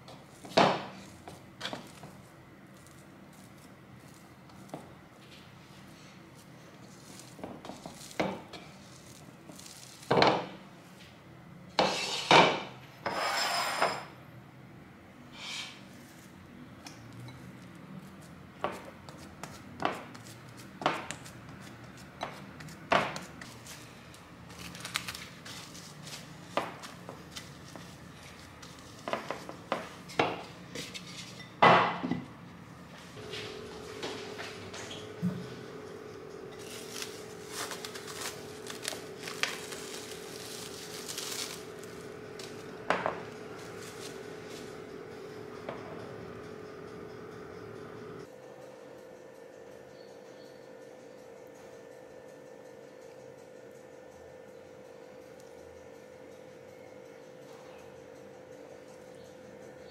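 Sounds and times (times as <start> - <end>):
cling film rustling: 24.5 - 26.3, 36.6 - 42.7.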